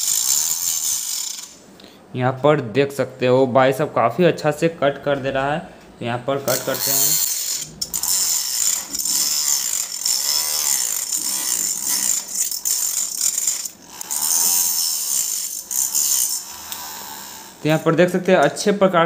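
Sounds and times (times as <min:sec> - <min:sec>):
mini angle grinder cutting plastic: 0:00.0 - 0:01.6, 0:06.5 - 0:17.9.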